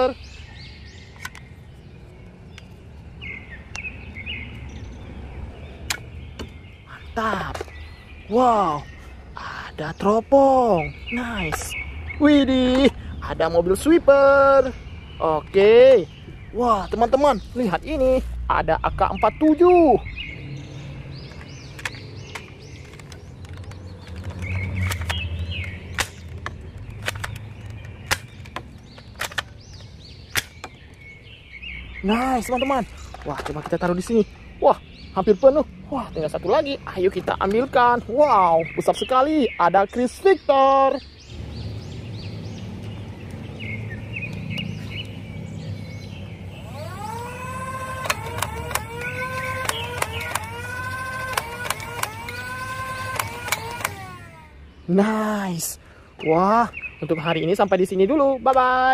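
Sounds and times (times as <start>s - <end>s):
birds chirping: 0.0s - 58.9s
toy blaster clicking shots: 46.6s - 54.6s.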